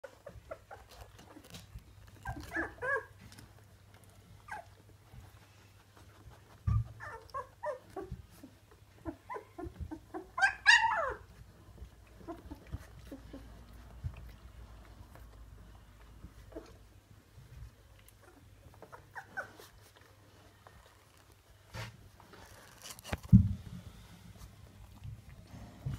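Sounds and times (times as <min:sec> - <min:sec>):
puppies squeaking and whining: 0:00.0 - 0:23.0
dull thump: 0:23.2 - 0:23.8.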